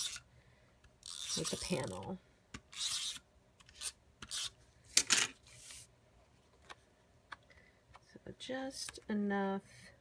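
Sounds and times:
tape runner drawn across paper: 0:02.7 - 0:04.6, 0:05.4 - 0:05.9.

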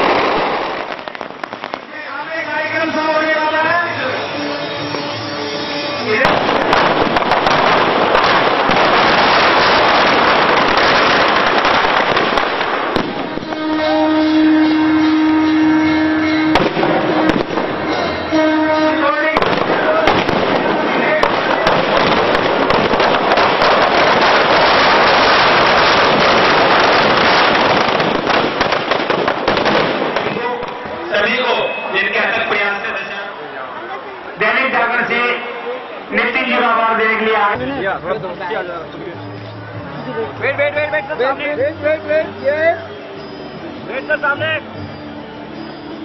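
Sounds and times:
sharp firecracker bangs: 0:00.0 - 0:02.0, 0:06.2 - 0:14.2, 0:16.3 - 0:31.8
firecrackers crackling: 0:00.0 - 0:05.1, 0:06.0 - 0:14.2, 0:16.3 - 0:31.6.

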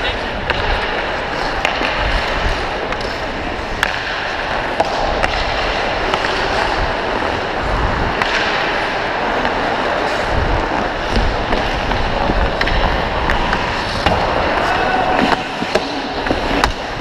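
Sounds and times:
hockey sticks and puck clacking: 0:00.0 - 0:17.0
skate blades scraping ice: 0:00.0 - 0:17.0.

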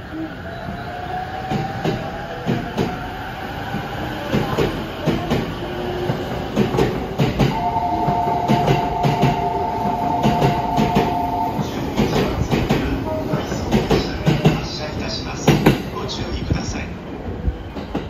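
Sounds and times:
two-note train horn blast: 0:07.5 - 0:11.7.

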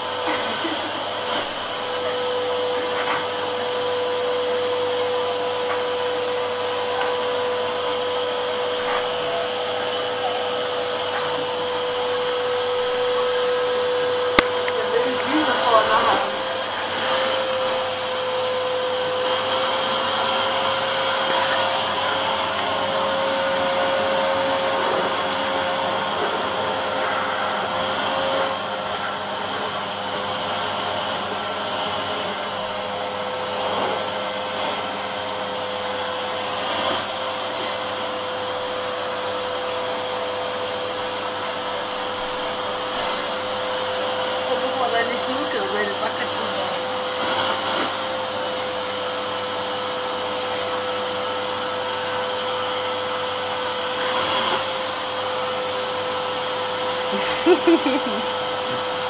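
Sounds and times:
vacuum cleaner whining: 0:00.0 - 0:59.0.

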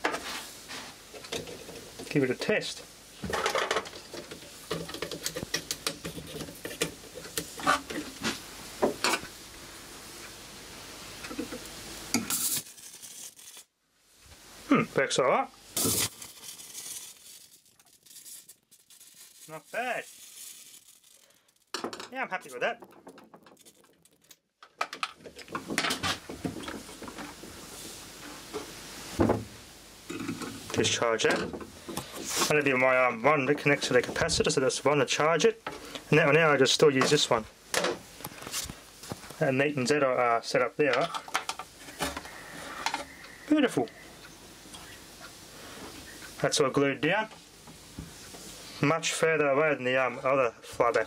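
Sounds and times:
faint hiss: 0:00.0 - 0:22.8, 0:25.5 - 0:51.0
high-voltage sparks snapping: 0:12.2 - 0:13.7, 0:15.8 - 0:21.7.

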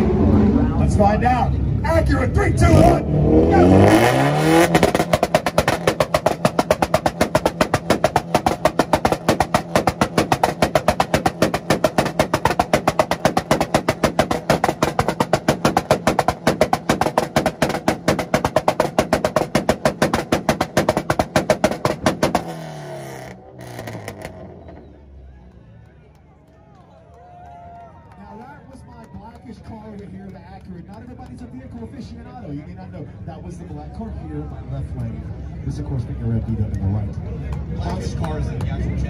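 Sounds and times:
engine exhaust pops on launch limiter: 0:03.8 - 0:25.0.

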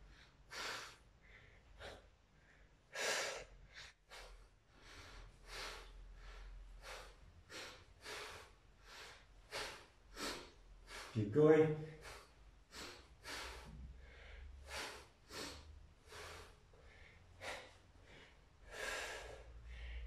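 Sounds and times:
man breathing heavily: 0:00.0 - 0:20.0.

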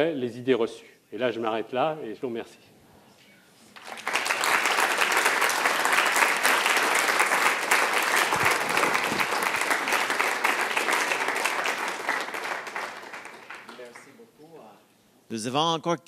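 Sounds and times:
audience applauding: 0:03.8 - 0:14.2.

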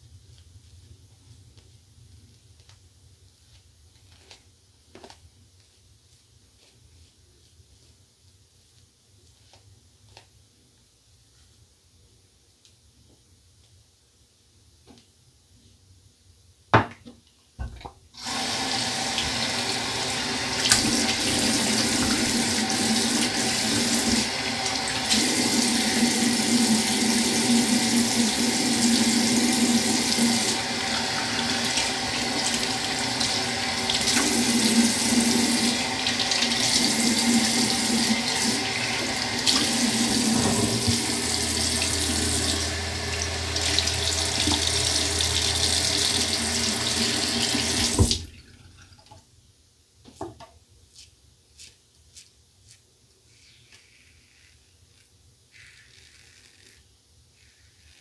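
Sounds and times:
tap running into basin: 0:17.6 - 0:49.2.

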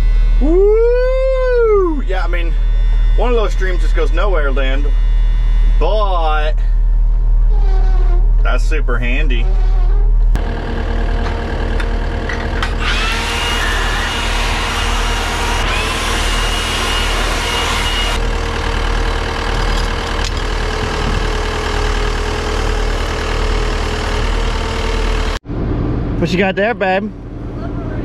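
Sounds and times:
diesel engine idling: 0:08.5 - 0:28.0.

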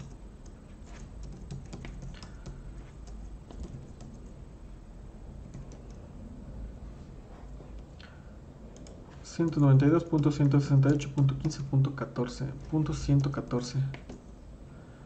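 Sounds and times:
computer keyboard typing: 0:00.0 - 0:04.4, 0:05.4 - 0:06.0, 0:08.7 - 0:11.7, 0:12.7 - 0:14.4.

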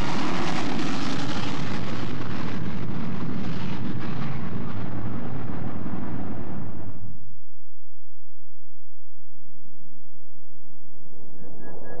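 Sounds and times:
jet engines roaring: 0:00.0 - 0:06.7.

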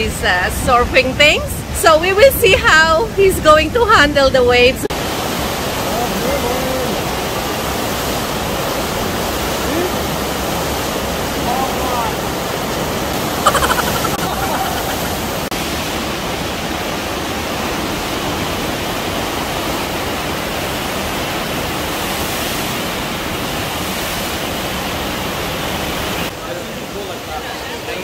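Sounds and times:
rushing water: 0:04.9 - 0:28.0
voice-like cry: 0:13.4 - 0:15.4.

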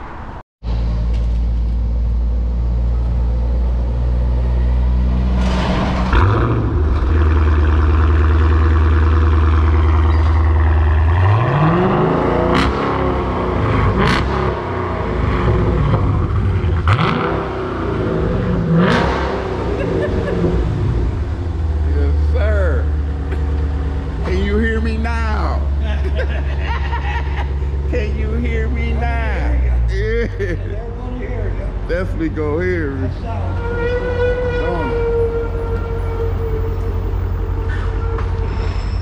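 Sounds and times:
car engine revving: 0:02.1 - 0:30.6.

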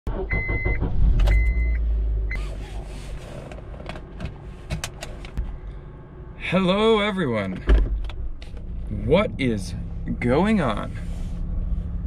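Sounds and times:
car warning chime beeping: 0:00.2 - 0:01.8
low rumble: 0:05.3 - 0:12.0.

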